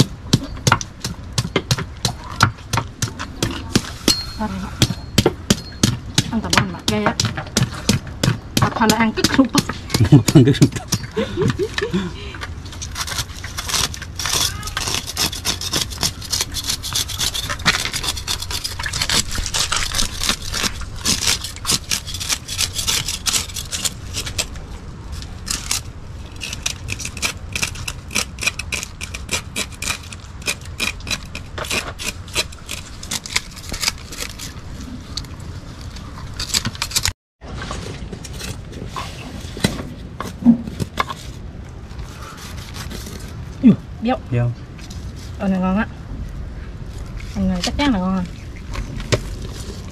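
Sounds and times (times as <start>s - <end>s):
knife scraping fish scales: 12.7s - 24.6s, 42.0s - 43.4s.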